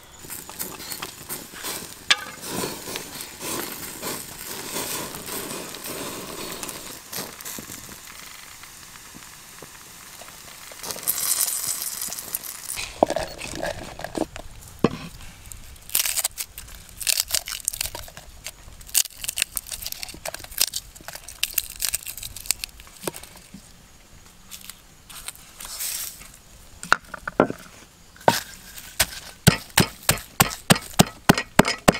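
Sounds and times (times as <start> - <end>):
garlic skins crackling: 0.2 - 14.3, 15.2 - 23.6.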